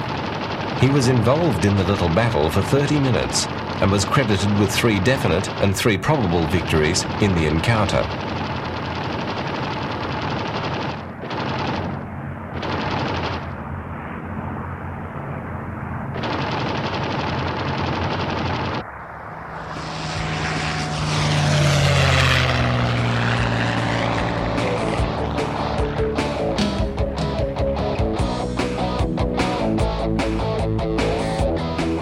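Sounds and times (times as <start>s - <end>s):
propeller plane flying past low: 0.0s - 32.0s
piston engine droning: 13.3s - 31.9s.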